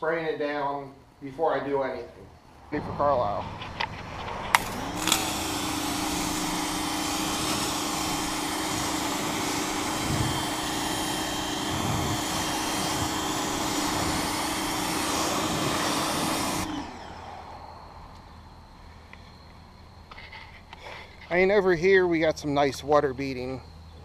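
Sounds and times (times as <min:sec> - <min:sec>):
pressure washer motor humming: 0:02.9 - 0:18.2
water jet hissing on car: 0:04.5 - 0:16.8.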